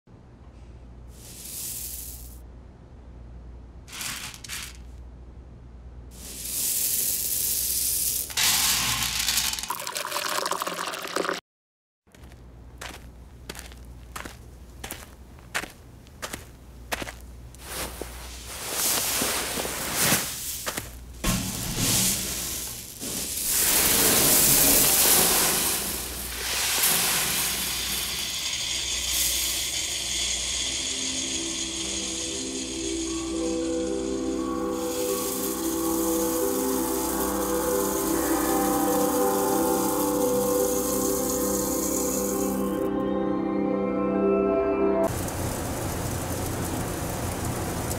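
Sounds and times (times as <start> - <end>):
hand sweeping through coffee beans: 1.1 - 2.4, 3.9 - 4.9, 6.1 - 9.9, 17.0 - 42.9
water pouring into glass: 9.6 - 11.4.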